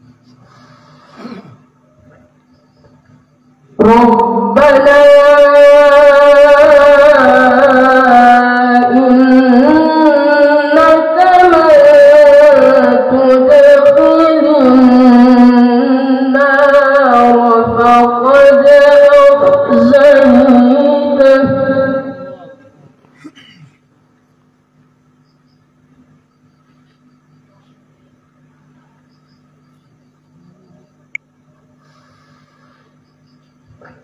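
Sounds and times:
boy reciting melodically: 3.8s - 22.6s.

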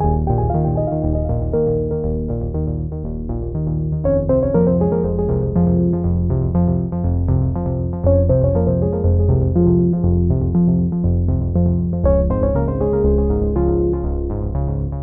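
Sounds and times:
synthesizer keyboard tune: 0.0s - 2.7s, 4.0s - 6.2s, 8.1s - 10.4s
bass line: 0.0s - 15.0s.

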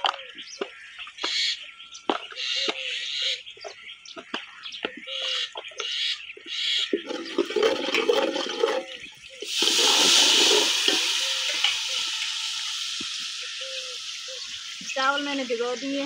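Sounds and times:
steel ladle scooping water: 7.0s - 15.0s
loud sizzling hiss in pot: 8.8s - 16.0s.

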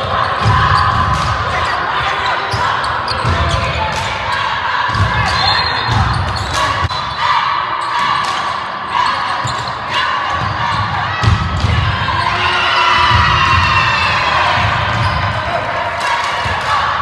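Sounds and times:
crowd chatter: 0.0s - 17.0s.

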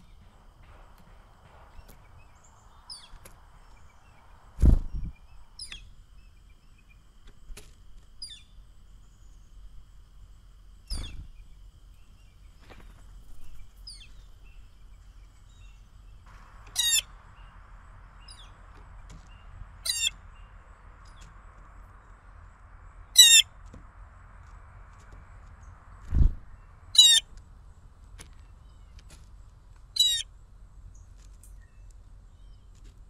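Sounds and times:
small birds chirping: 0.0s - 23.7s, 25.0s - 33.0s
blue jay harsh calls: 16.6s - 17.5s, 19.8s - 20.5s, 23.0s - 23.6s, 26.9s - 27.3s, 29.9s - 30.3s.

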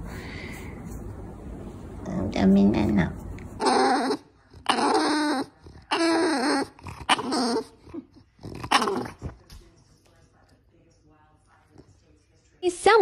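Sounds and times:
dog whining: 3.6s - 9.3s.

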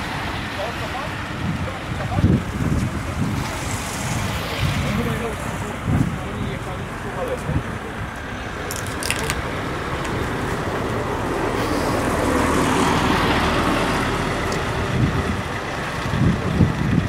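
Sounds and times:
vehicle driving past: 10.2s - 16.3s.

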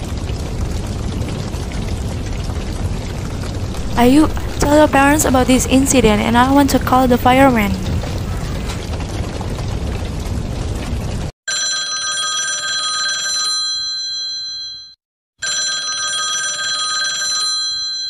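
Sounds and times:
steady rushing noise: 3.6s - 9.7s
telephone ringing: 11.5s - 18.0s.

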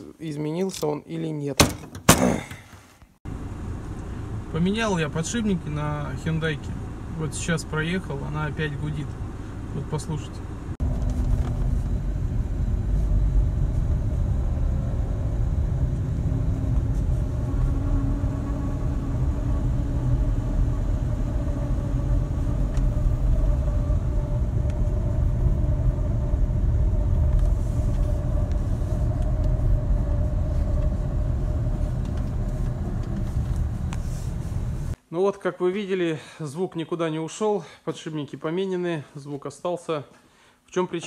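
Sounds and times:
road and tyre rumble: 3.3s - 35.0s
steady whine from car: 3.3s - 35.0s.

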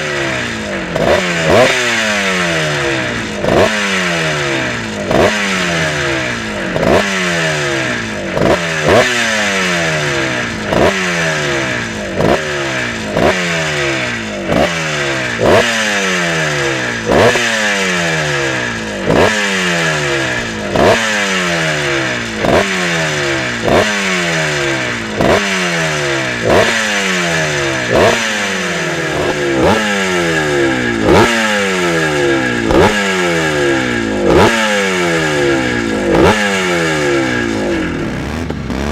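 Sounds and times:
motorbike engine revving: 0.0s - 38.9s.

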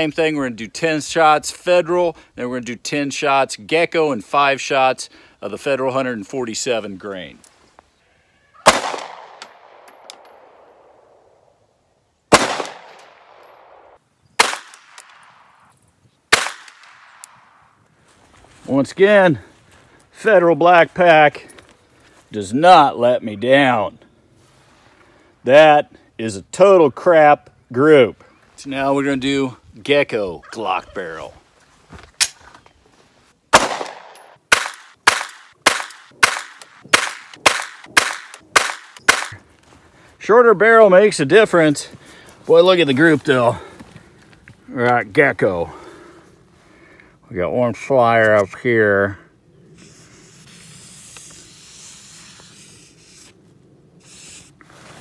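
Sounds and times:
pistol shots with echo: 8.6s - 10.5s, 12.3s - 13.8s, 14.4s - 15.2s, 16.3s - 17.2s, 33.5s - 39.4s.

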